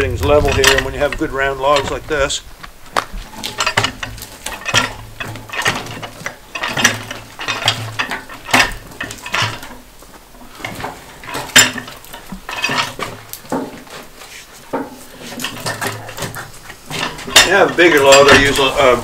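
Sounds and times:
metal hook and log clanking on steel: 0:00.0 - 0:02.4, 0:03.2 - 0:19.0.

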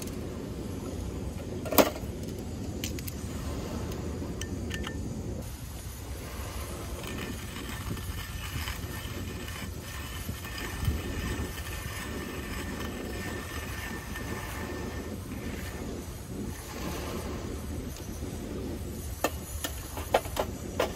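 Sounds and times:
wind on microphone: 0:00.0 - 0:20.9
hand coffee grinder grinding: 0:06.8 - 0:15.8.

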